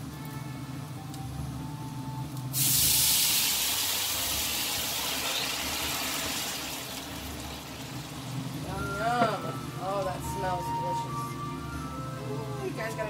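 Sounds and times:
wine sizzling in hot pan: 2.4 - 11.0.

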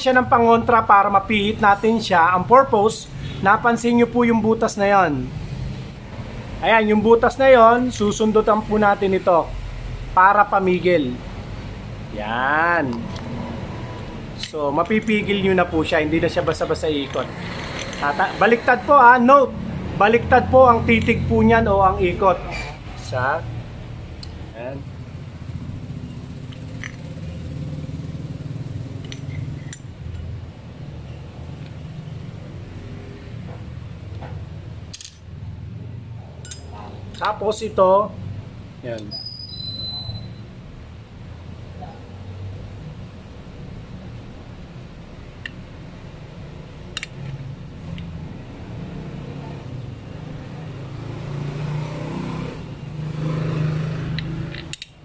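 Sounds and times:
light plastic and metal clicks: 54.2 - 55.0.

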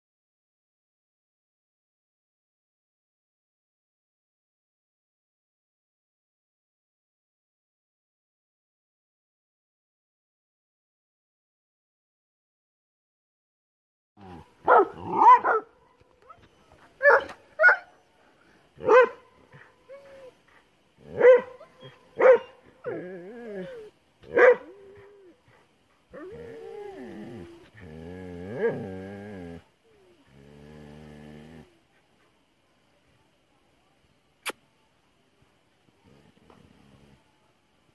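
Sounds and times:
dog barking: 14.6 - 18.0, 18.8 - 19.7, 21.1 - 23.0, 24.3 - 25.1
dog whining: 19.9 - 20.4, 21.2 - 23.9.

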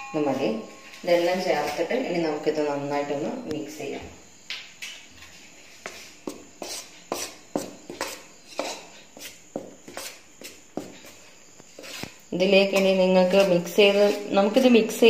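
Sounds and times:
metal spoon scraping steel bowl: 11.8 - 15.0.

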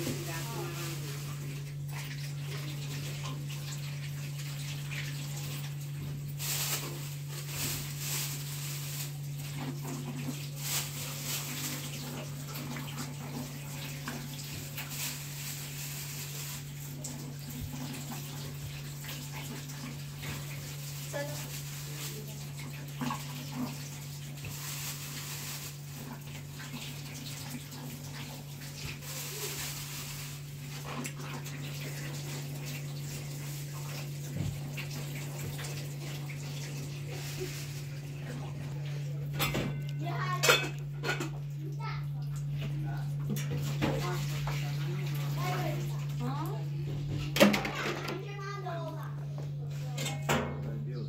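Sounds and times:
plastic bag crinkling: 0.0 - 1.8, 6.2 - 12.5, 14.2 - 18.6, 20.4 - 23.4, 24.4 - 26.3, 29.0 - 30.8, 37.0 - 38.8
tap water running: 0.0 - 50.8.

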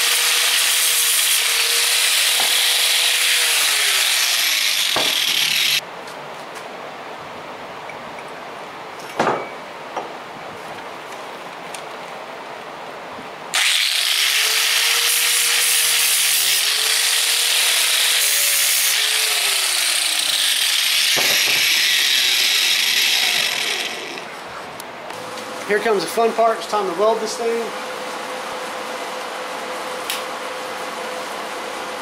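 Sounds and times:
angle grinder abrading steel: 0.0 - 5.8, 13.6 - 24.4.

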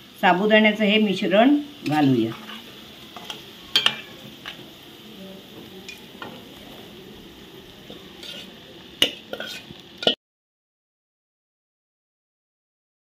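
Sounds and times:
potato sizzling in oil: 0.0 - 10.2
metal spatula scraping pan: 1.7 - 4.6, 7.8 - 10.2.

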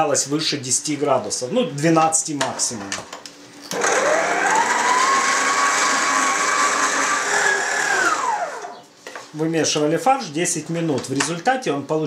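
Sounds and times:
stand mixer motor whining: 3.7 - 8.8.

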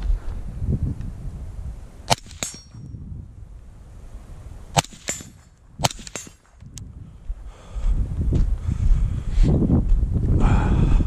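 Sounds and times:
low wind rumble: 0.0 - 11.0
suppressed rifle shots: 2.1 - 2.8, 4.7 - 6.5
bullet ringing on steel plate: 2.1 - 3.0, 4.8 - 6.5.

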